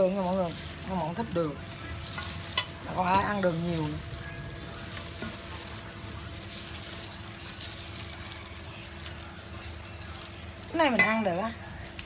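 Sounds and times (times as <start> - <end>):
gloved hands tossing food: 0.0 - 12.0.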